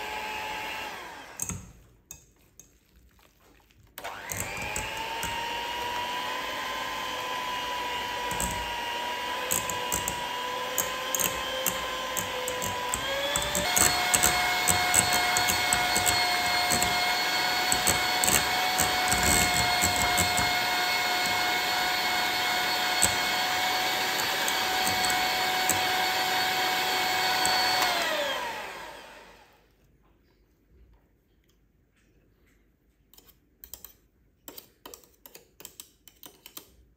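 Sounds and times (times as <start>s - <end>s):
electric mixer motor whining: 0.0s - 1.6s, 4.0s - 29.5s.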